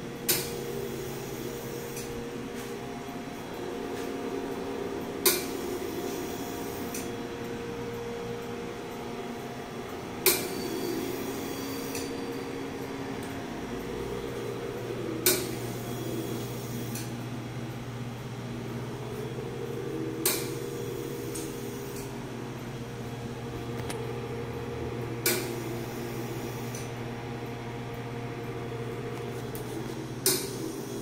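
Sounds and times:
lab equipment humming: 0.0 - 31.0
sharp click: 10.2 - 10.5, 20.2 - 20.6, 29.5 - 30.6.

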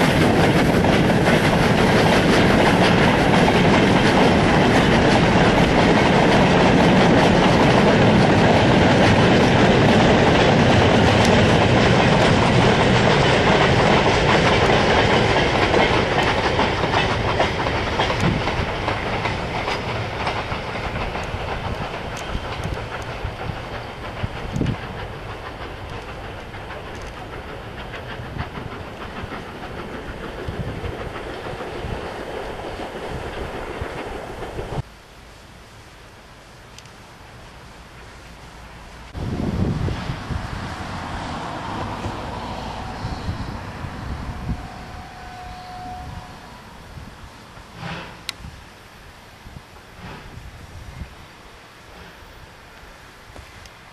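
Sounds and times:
train clattering over rail joints: 0.0 - 34.8, 47.4 - 48.5, 49.7 - 50.4.

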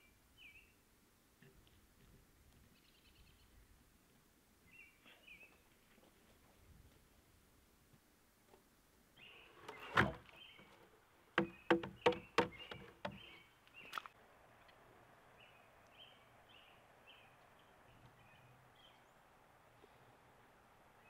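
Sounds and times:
faint bird chirps: 2.7 - 3.6
wood-on-wood knocks: 11.4 - 13.3.

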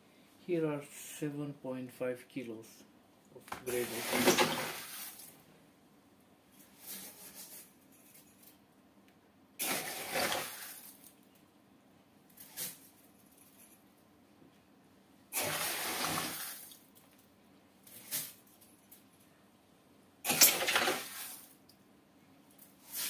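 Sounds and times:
scoop scraping gravel: 3.7 - 5.3, 9.6 - 10.9, 15.4 - 16.7, 20.3 - 21.5
gravel pouring into glass tank: 3.8 - 5.3, 9.6 - 10.9.

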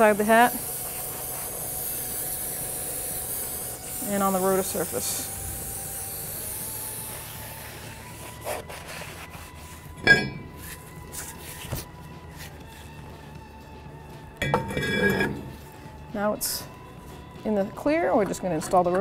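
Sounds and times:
aerosol spray hissing: 0.0 - 8.6
rag rubbing on metal rotor: 14.6 - 15.6.

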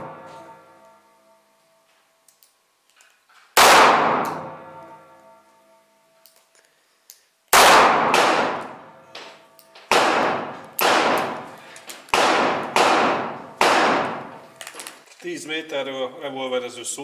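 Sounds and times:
revolver shots echoing: 3.6 - 4.8, 7.6 - 14.5.

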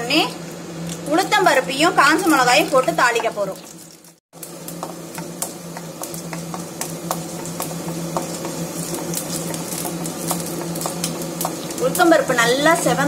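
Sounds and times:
hot oil sizzling in a pan: 0.0 - 13.0
wooden spatula stirring: 4.7 - 11.9.

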